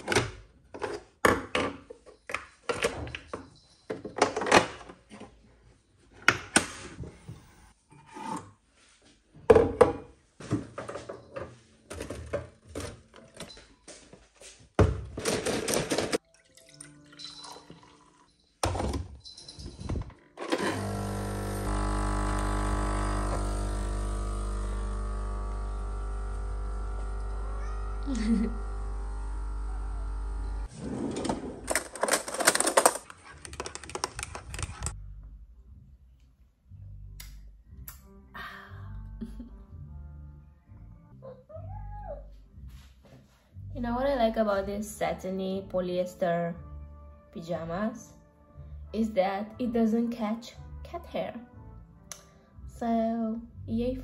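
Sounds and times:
steady hum with held tones: 20.9s - 30.7s.

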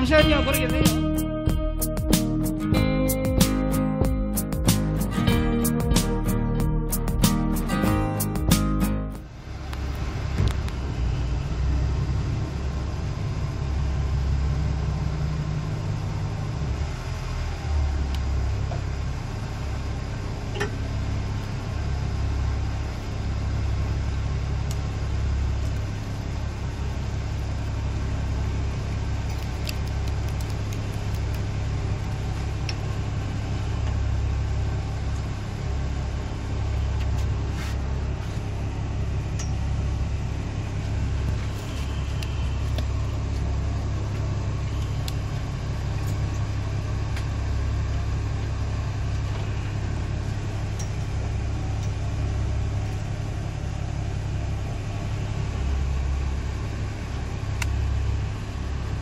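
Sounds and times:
boat engine idling: 0.0s - 6.3s.

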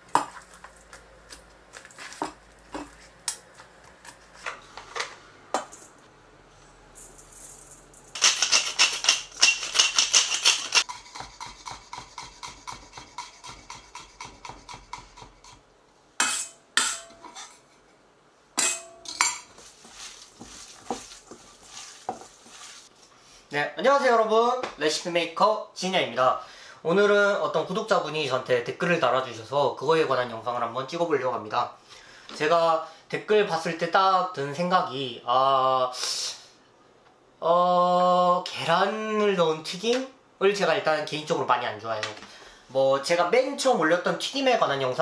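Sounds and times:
pepper mill grinding: 7.0s - 12.5s.

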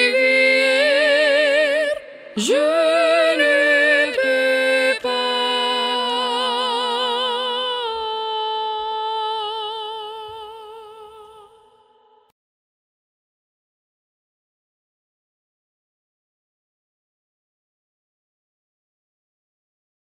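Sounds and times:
person singing with vibrato: 0.0s - 12.3s.

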